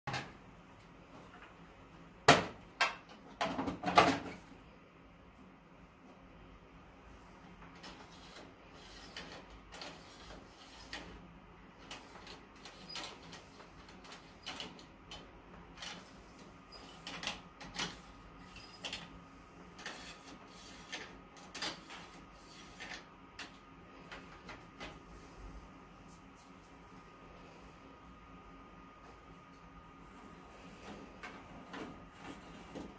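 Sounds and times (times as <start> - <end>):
steady low hum: 13.5 - 32.9.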